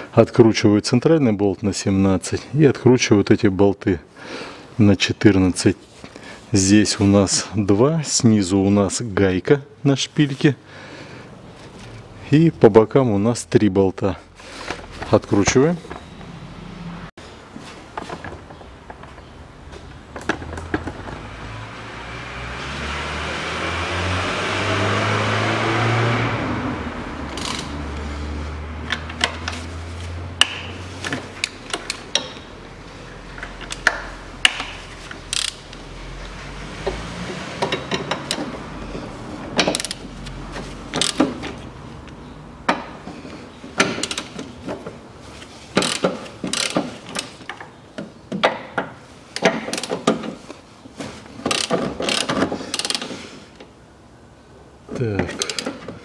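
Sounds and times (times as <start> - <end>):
loud noise with rising hum: 21.2 - 28.9
ratchet wrench clicking: 27.3 - 27.8, 33.6 - 35.8, 39.6 - 40.0, 40.9 - 41.2, 44.0 - 44.3, 45.8 - 47.3, 51.5 - 53.1.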